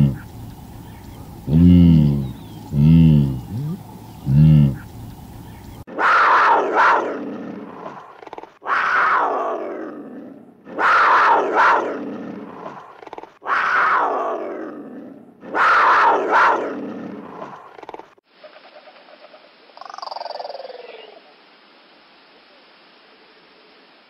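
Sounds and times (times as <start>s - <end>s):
large animal roaring: 0.0s - 0.5s, 1.2s - 5.1s, 5.9s - 17.6s.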